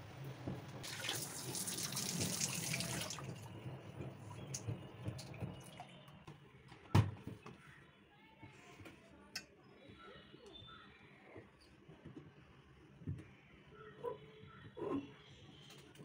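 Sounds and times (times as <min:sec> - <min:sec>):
water sloshing in washing machine: 0:00.5 - 0:06.3.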